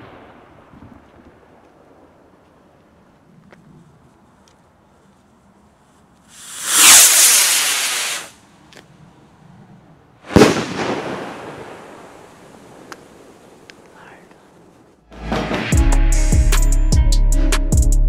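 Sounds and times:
firework rocket hissing: 6.3s - 8.4s
firework bang echoing: 6.4s - 8.4s, 10.3s - 12.1s.

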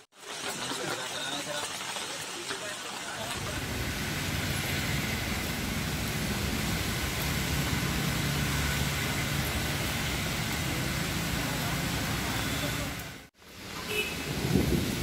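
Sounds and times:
wet road noise: 0.0s - 15.0s
heavy rain hissing: 0.2s - 15.0s
low hum of motor traffic: 3.2s - 15.0s.

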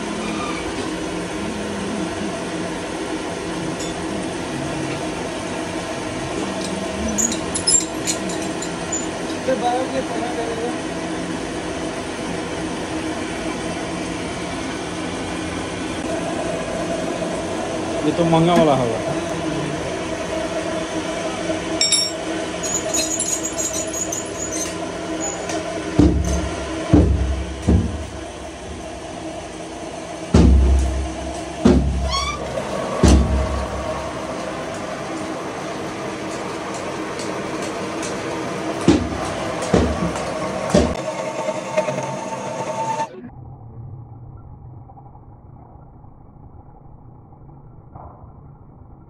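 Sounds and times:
lathe running: 0.0s - 43.1s
short rising squeak: 0.2s - 0.9s, 22.6s - 25.6s, 32.0s - 32.6s.

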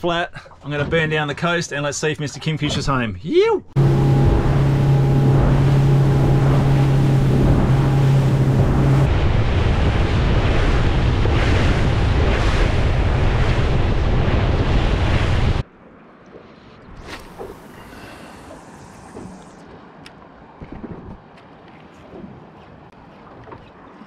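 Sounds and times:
boat motor drone: 3.8s - 15.6s, 16.8s - 20.4s
wind buffeting microphone: 3.8s - 15.6s
rushing water: 3.8s - 15.7s.

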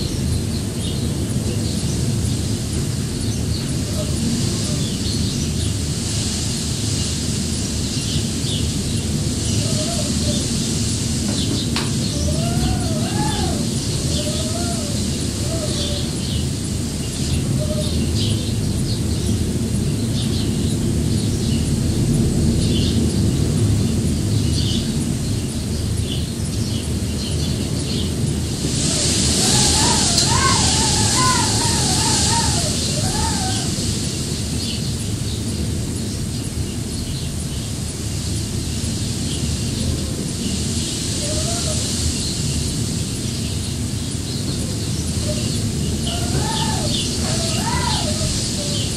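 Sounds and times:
wind buffeting microphone: 0.0s - 48.9s
small birds chirping: 11.3s - 21.7s, 22.6s - 48.9s
pigeon cooing: 12.1s - 16.3s, 28.8s - 33.9s, 44.6s - 48.9s.

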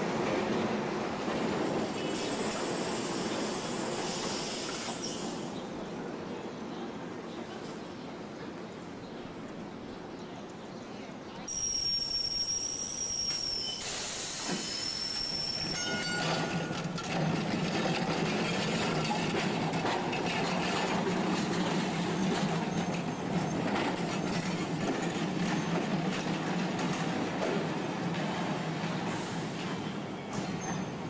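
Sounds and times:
streetcar wheels squealing: 0.2s - 5.6s, 11.5s - 31.0s
wheels clacking over rail joints: 15.7s - 31.0s.

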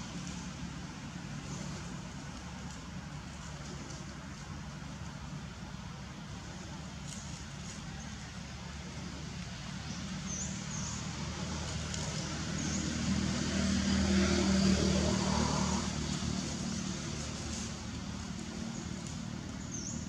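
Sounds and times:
vehicle engine passing by: 5.2s - 20.0s.

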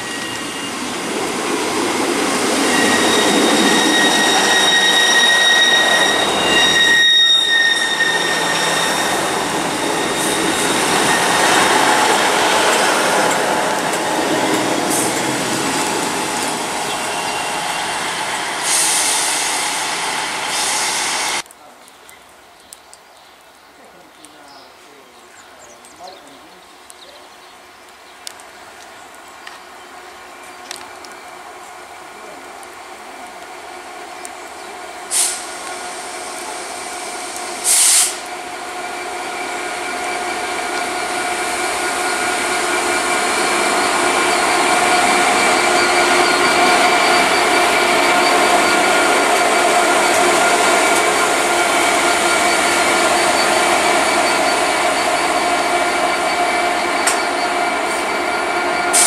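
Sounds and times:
locomotive engine drone: 0.0s - 20.5s, 29.4s - 59.0s
loud hissing bursts: 7.8s - 21.4s, 35.0s - 38.3s.

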